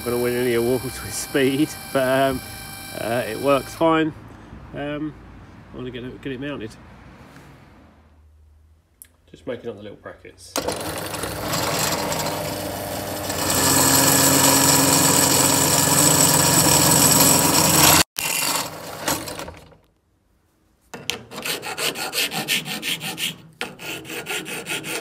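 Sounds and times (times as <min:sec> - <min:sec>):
drill press cutting metal: 0:00.0 - 0:03.8, 0:10.6 - 0:19.6
hand file on metal edge: 0:21.1 - 0:25.0.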